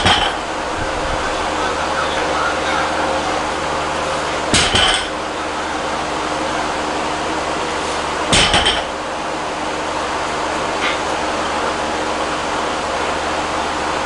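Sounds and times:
barbell plates clanking: 0.0 - 0.4, 4.5 - 5.2
steady hum: 0.0 - 14.0.

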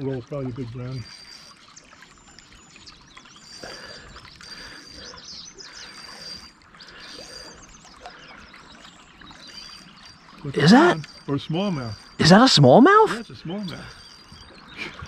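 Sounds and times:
water lapping against boat hull: 0.0 - 15.0.

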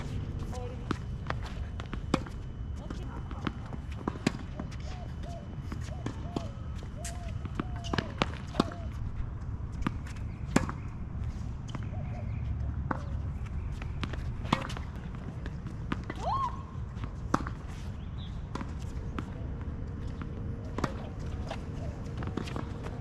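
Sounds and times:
tennis balls hit and bouncing: 0.0 - 23.0.

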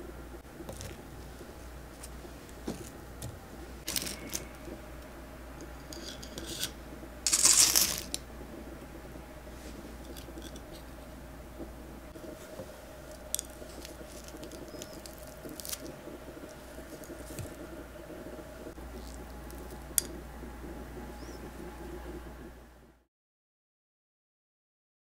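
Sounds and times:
cookie crunching: 5.9 - 8.2, 12.4 - 17.7, 18.8 - 20.2.

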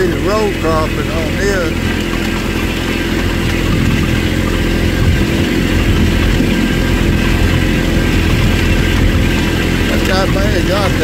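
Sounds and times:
tractor diesel engine running: 0.0 - 11.0.

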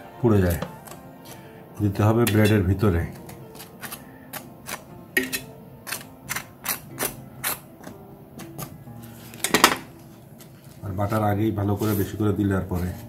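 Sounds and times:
knife scraping crisp bread crust: 0.4 - 1.5, 2.3 - 9.5.

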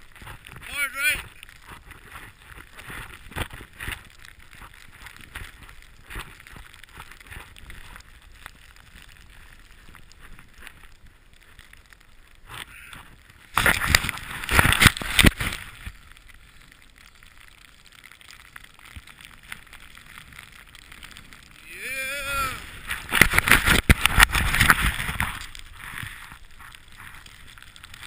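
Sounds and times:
snowboard hissing through snow: 21.7 - 27.4.

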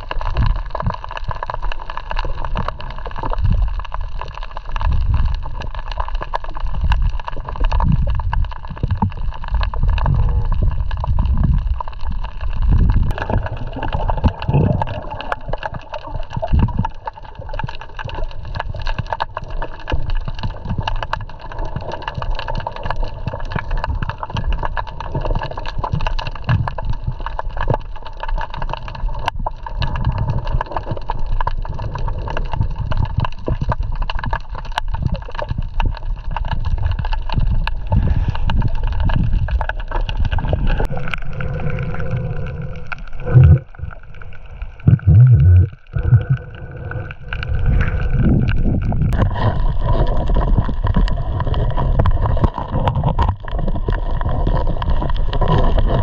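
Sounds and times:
water noise: 0.0 - 56.0
wind noise: 7.8 - 15.0, 36.5 - 56.0.

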